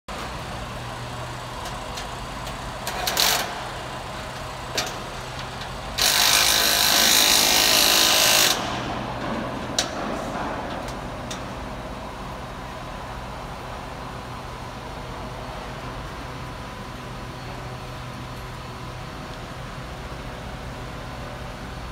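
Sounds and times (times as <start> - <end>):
hissing power tool: 5.9 - 9.0
metallic knocks and clanks: 8.7 - 11.6.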